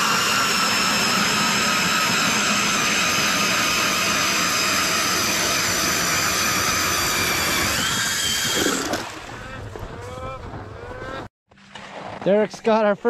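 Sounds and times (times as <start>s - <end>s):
electric ice auger whine: 0.0s - 9.6s
blades grinding ice: 0.0s - 13.0s.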